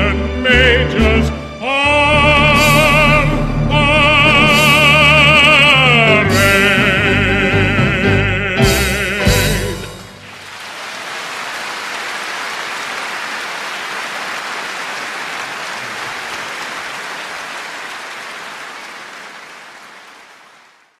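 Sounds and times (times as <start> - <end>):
audience applauding: 9.9 - 21.0.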